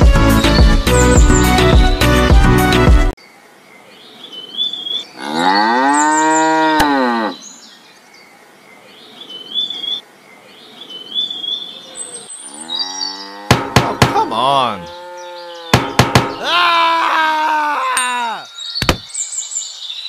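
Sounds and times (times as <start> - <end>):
cow mooing: 5.2 - 7.4, 12.5 - 13.8, 14.8 - 16.0.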